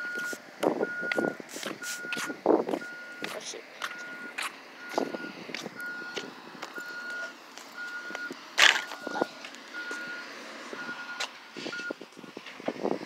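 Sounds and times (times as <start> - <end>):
repeating electronic beep: 3.9 - 12.0.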